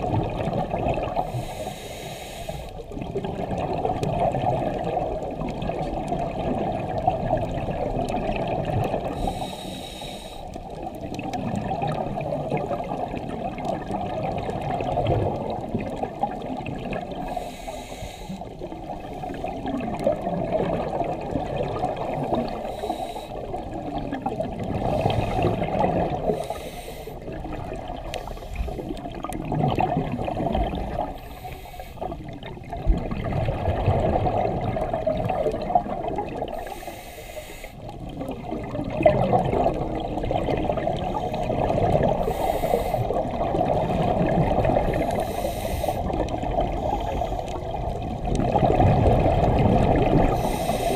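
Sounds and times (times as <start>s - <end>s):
gurgling exhaust bubbles: 0.0s - 1.4s, 2.8s - 9.2s, 10.8s - 17.4s, 18.5s - 22.7s, 23.4s - 26.4s, 27.2s - 31.2s, 32.0s - 36.7s, 37.9s - 45.4s, 46.0s - 50.9s
regulator inhalation hisses: 1.3s - 2.8s, 9.2s - 10.5s, 17.2s - 18.5s, 22.5s - 23.4s, 26.3s - 27.2s, 28.1s - 28.9s, 31.2s - 32.1s, 36.6s - 37.8s, 42.2s - 43.2s, 45.0s - 46.2s, 46.8s - 47.7s, 50.3s - 50.9s.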